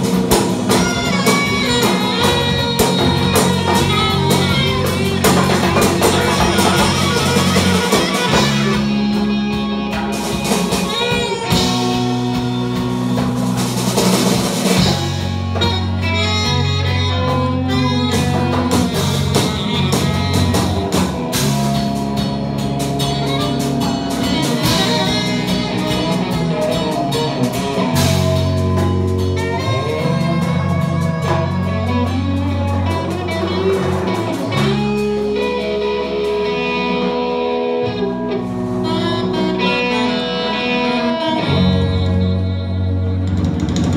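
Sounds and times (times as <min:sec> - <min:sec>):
djembe: 0:00.0 - 0:16.8
drum kit: 0:00.0 - 0:43.9
electric guitar: 0:00.0 - 0:43.9
saxophone: 0:00.0 - 0:43.9.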